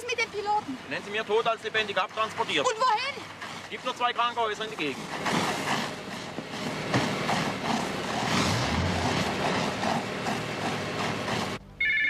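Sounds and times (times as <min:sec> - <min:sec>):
fire hoses spraying: 0:00.0 - 0:11.6
telephone bell ringing: 0:11.8 - 0:12.0.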